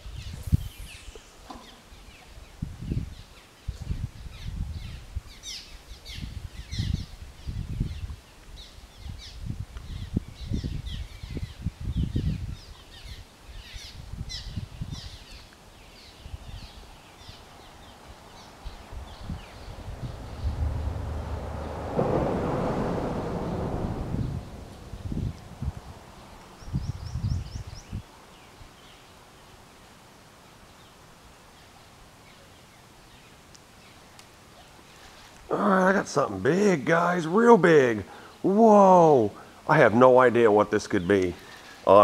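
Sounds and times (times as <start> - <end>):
small birds chirping: 0.0 - 21.1, 23.4 - 29.8, 40.9 - 42.0
faint outdoor hiss: 0.0 - 42.0
uneven low rumble: 18.5 - 27.6.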